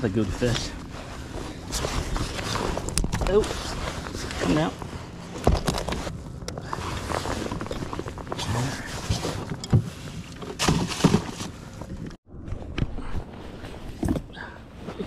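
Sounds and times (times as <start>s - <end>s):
knocks and clunks of handling: 5.3s - 6.7s, 9.1s - 12.2s
plastic cooler opening: 9.1s - 11.6s.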